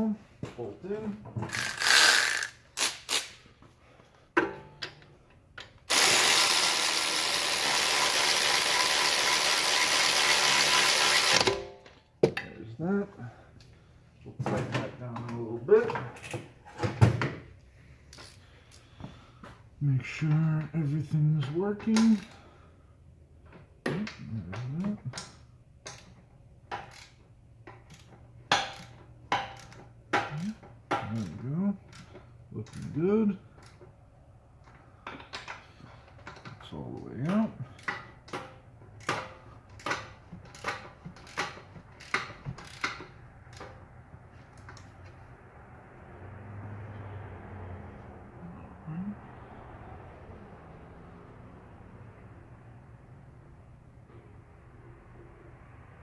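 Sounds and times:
electric ratchet running: 1.5s - 3.3s, 5.8s - 11.6s.

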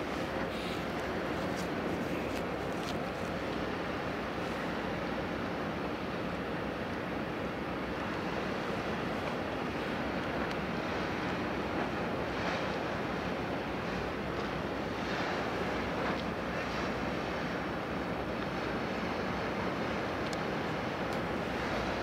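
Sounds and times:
water rushing: 0.0s - 14.0s, 18.8s - 22.0s
wind: 0.0s - 22.0s.

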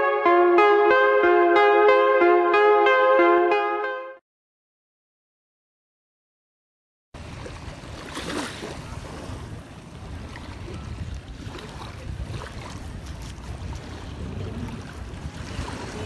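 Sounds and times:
wind rumbling on microphone: 7.2s - 16.0s.

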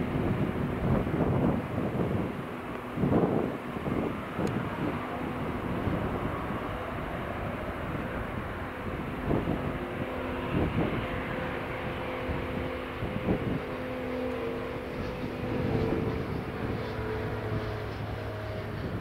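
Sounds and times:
jet engines droning whine: 0.0s - 19.0s.

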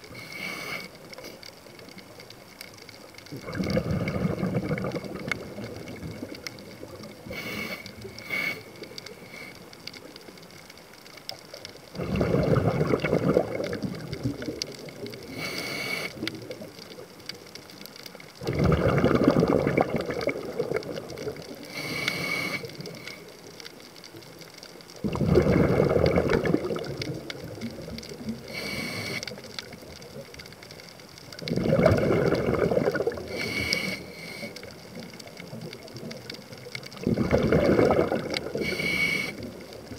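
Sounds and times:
regulator hiss on inhale: 0.0s - 1.8s, 7.1s - 10.3s, 15.2s - 16.6s, 21.3s - 23.8s, 28.2s - 29.7s, 33.1s - 35.0s, 38.3s - 39.9s
exhaled bubbles gushing: 3.3s - 8.9s, 11.9s - 15.3s, 18.4s - 21.7s, 25.0s - 28.6s, 31.2s - 33.6s, 34.6s - 39.9s.

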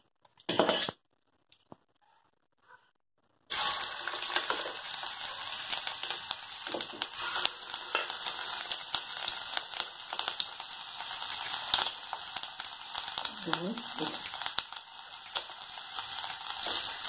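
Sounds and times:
batter sizzling in hot oil: 3.5s - 17.0s
small crackling pops: 11.1s - 15.6s.

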